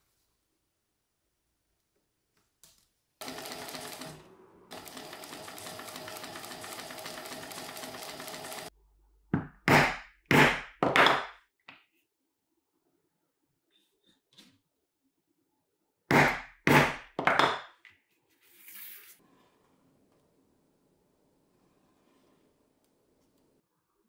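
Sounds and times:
sewing machine stitching: 3.2s - 8.7s.

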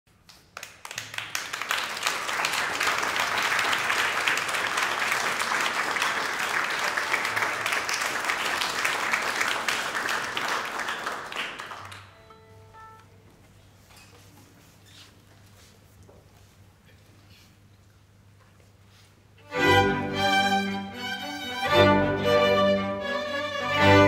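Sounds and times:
audience applauding: 0.4s - 12.2s.

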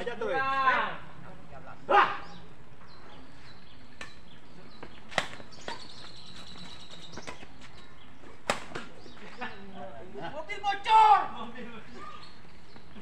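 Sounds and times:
rackets hitting shuttlecock: 3.9s - 7.6s, 8.4s - 9.2s.

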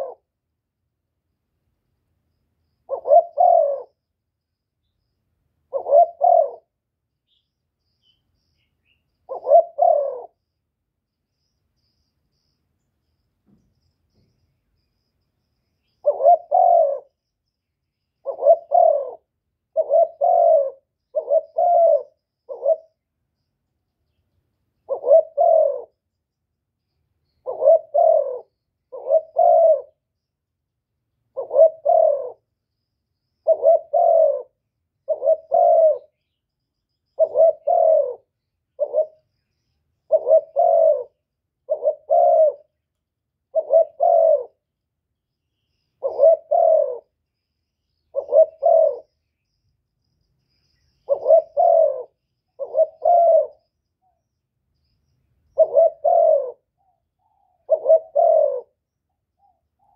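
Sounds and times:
dove cooing: 0.0s - 0.3s, 2.9s - 4.0s, 5.7s - 7.4s, 9.3s - 10.4s, 16.0s - 17.2s, 18.2s - 23.0s, 24.8s - 26.0s, 27.4s - 30.0s, 31.3s - 32.5s, 33.4s - 36.2s, 37.2s - 39.3s, 40.1s - 42.8s, 43.5s - 44.7s, 46.0s - 47.2s, 48.1s - 49.2s, 51.0s - 53.7s, 55.6s - 58.8s.

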